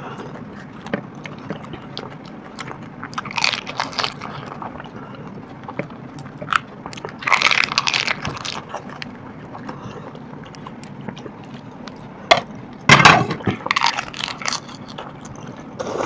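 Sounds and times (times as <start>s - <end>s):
crisp shells crunching: 3.2s - 4.5s, 6.5s - 9.1s, 13.7s - 15.3s.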